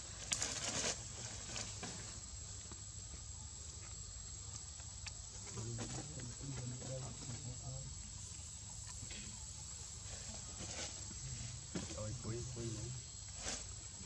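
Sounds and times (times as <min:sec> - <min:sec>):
rustle: 0:00.0 - 0:14.0
faint clicks and patters: 0:03.7 - 0:12.4
high-pitched insect drone: 0:05.4 - 0:14.0.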